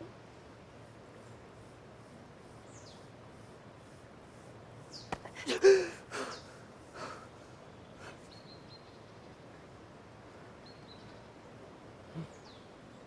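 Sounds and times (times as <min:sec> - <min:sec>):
man huffing breaths: 0:05.4 - 0:07.4.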